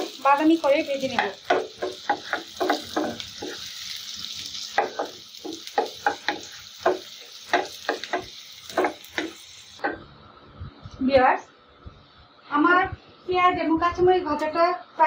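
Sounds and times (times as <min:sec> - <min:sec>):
onions sizzling in oil: 0:00.0 - 0:09.9.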